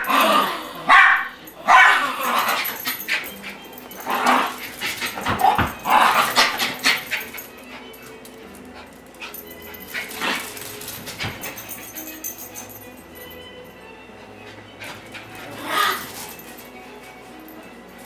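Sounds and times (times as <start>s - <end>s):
dog yipping and barking: 0.9s - 3.0s, 15.4s - 16.4s.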